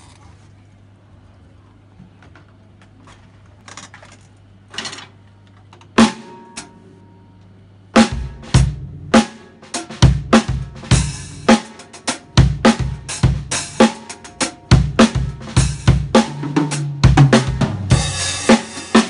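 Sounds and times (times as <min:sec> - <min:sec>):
low steady hum: 0:00.0 - 0:09.6
drum kit strikes: 0:05.9 - 0:06.9, 0:07.9 - 0:19.0.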